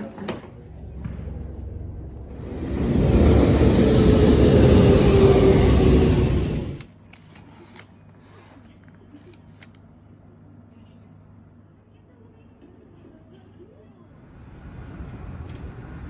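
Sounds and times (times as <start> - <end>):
loud rushing street traffic: 0.9 - 6.8, 14.2 - 16.0.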